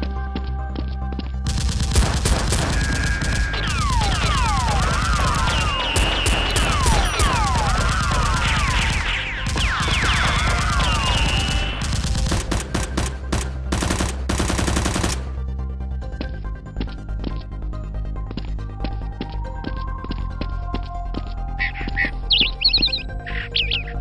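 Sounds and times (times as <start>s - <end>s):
automatic gunfire: 1.5s - 15.4s.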